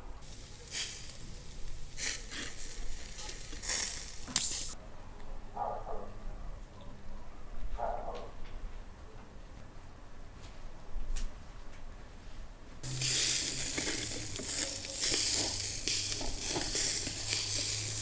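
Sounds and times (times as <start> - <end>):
loud bursts of hissing: 0.2 - 4.8, 12.8 - 18.0
meat skewers sizzling over charcoal: 0.2 - 4.8, 12.8 - 18.0.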